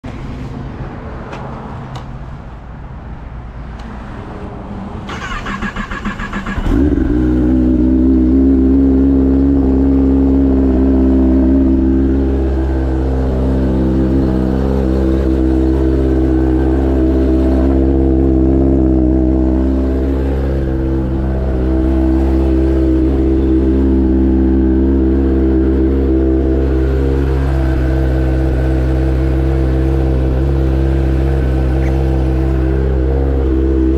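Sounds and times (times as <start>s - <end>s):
low rumble: 6.8s - 33.9s.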